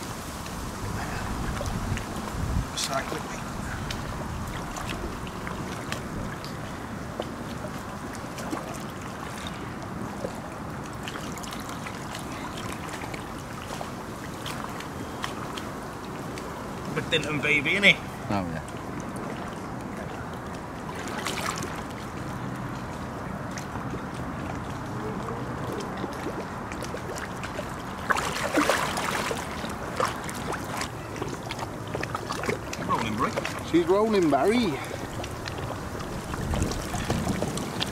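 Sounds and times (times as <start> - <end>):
wind rumble on microphone: 0.0 - 11.4, 34.9 - 37.9
water lapping and splashing: 0.0 - 37.9
wind: 0.0 - 37.9
water dripping: 1.5 - 8.6.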